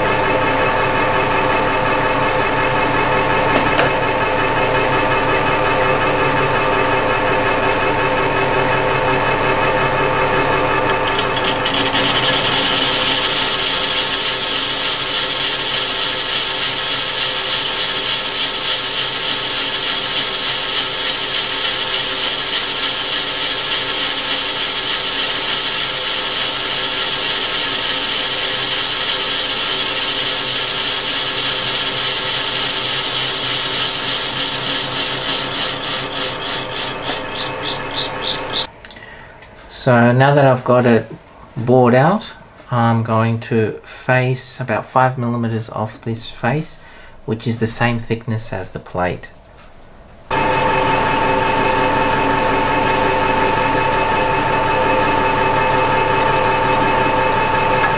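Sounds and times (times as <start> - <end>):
metal lathe whine: 0.0 - 38.7, 50.3 - 57.9.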